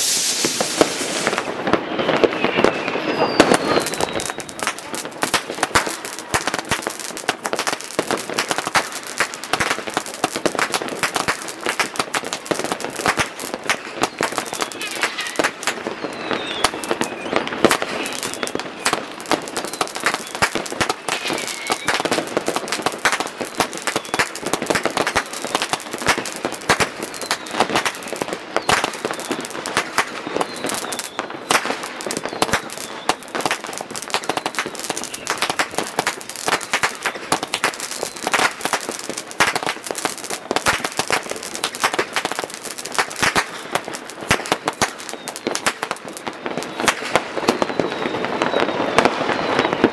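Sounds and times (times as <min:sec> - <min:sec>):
firework whistle gliding in pitch: 0:00.0 - 0:06.9, 0:13.7 - 0:40.6, 0:44.4 - 0:49.9
fireworks bangs and crackles: 0:00.0 - 0:49.9.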